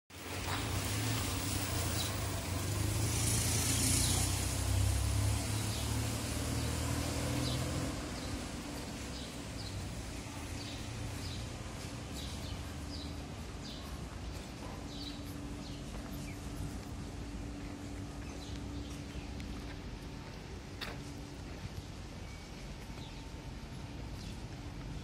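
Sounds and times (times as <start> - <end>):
quiet street background: 0.1 - 25.0
motor scooter passing: 0.3 - 13.1.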